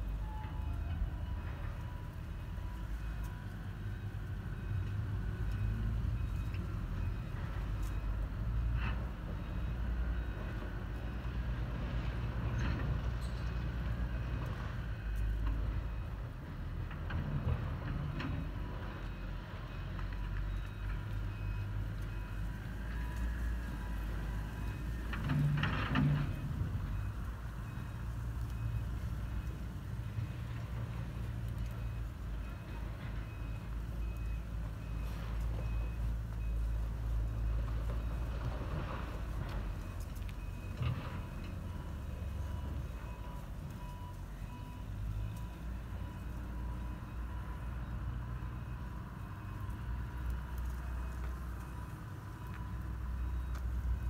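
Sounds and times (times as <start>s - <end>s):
faint high beep: 0.0s - 8.2s
distant traffic rumble: 0.0s - 54.0s.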